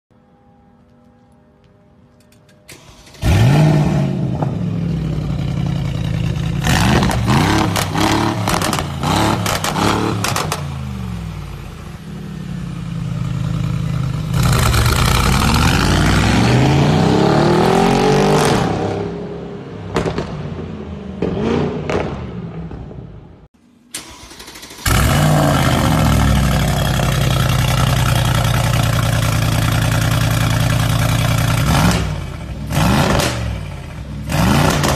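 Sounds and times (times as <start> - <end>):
car engine revving: 3.0 - 20.4, 24.1 - 34.9
exhaust crackles and pops: 6.8 - 10.6.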